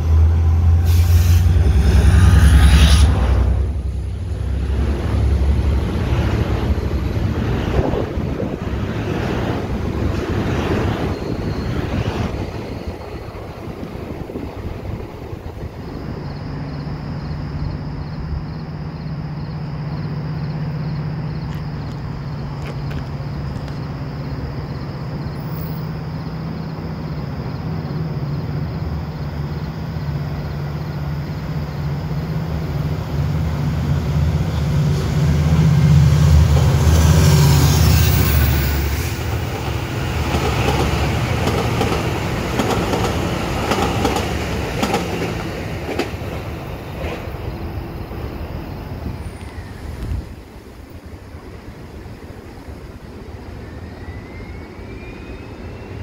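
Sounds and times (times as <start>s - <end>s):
diesel locomotive engine drone: 0.0s - 56.0s
train wheels rumbling: 0.0s - 56.0s
wheels clicking over rail joints: 39.6s - 47.4s.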